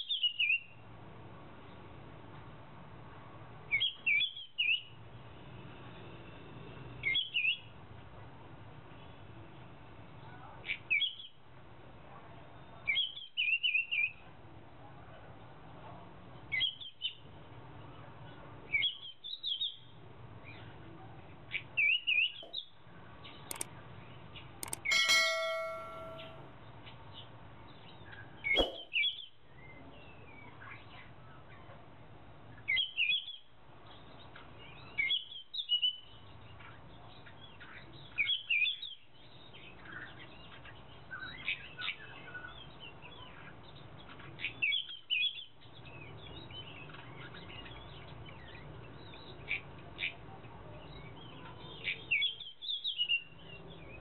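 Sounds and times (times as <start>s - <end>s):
sharp clicks: 24.6s - 26.3s
brief ringing ding: 24.6s - 26.4s.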